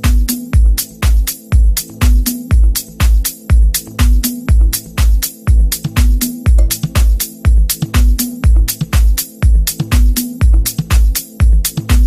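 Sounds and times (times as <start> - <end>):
electronic dance music: 0.0 - 12.0
kick drum: 0.0 - 12.0
sharp percussion: 0.0 - 12.0
bass line: 4.0 - 8.8.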